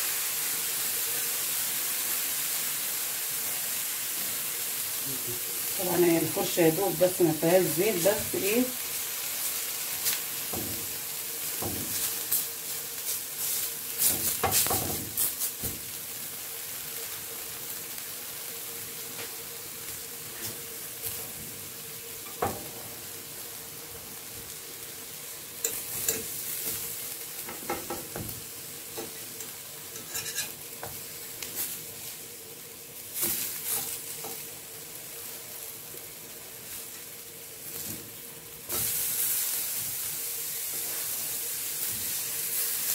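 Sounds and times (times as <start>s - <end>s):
vegetables sizzling on grill pan: 0.0s - 42.9s
utensil tapping and scraping pan: 27.4s - 28.4s, 29.0s - 31.0s.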